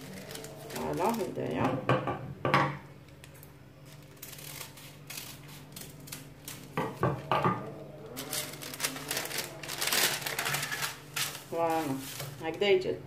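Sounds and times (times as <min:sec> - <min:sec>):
baking paper rustling: 0:00.0 - 0:01.6, 0:03.2 - 0:07.0, 0:08.0 - 0:12.8.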